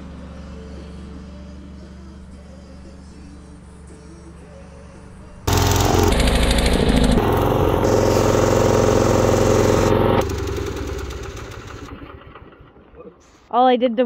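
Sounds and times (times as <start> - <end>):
welding generator engine running: 5.5 - 13.0.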